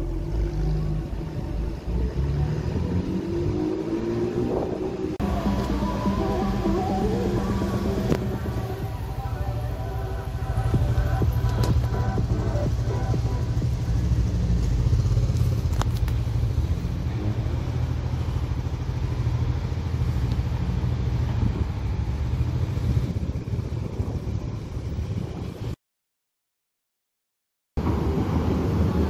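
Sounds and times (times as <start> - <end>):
car engine idling: 5.2 - 25.0
motorcycle idling: 5.2 - 25.6.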